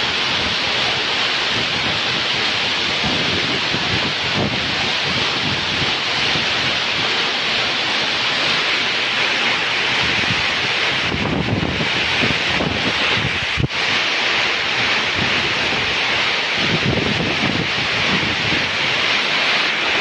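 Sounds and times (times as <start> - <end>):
heavy rain on corrugated roof: 0.0 - 20.0
wind buffeting microphone: 1.5 - 7.1, 9.9 - 14.0, 14.7 - 19.2.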